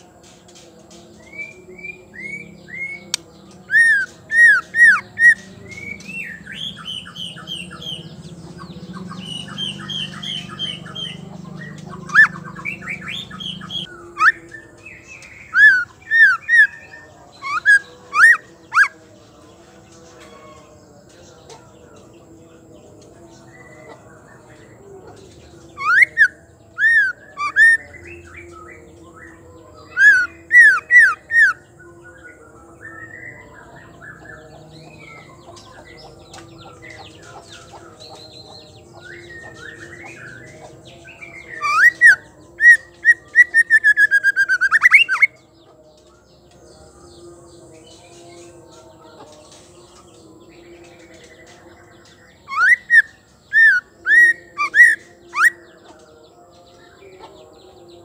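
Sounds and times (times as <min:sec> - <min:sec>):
soft bird twittering: 0:00.0 - 0:19.1, 0:22.8 - 0:56.0
bird singing whistled notes: 0:01.2 - 0:18.9, 0:25.8 - 0:45.5, 0:50.8 - 0:55.7.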